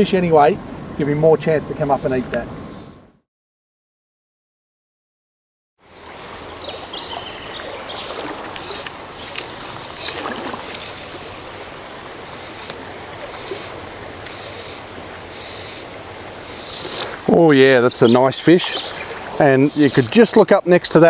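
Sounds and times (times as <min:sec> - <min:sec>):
shallow stream rushing: 0:05.8 - 0:21.0
wading splashes: 0:05.9 - 0:20.4.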